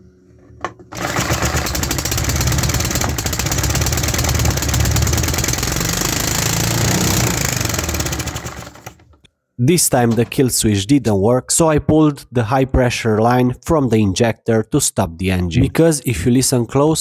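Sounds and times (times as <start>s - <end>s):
small petrol engine running fast: 0.9s - 9.0s.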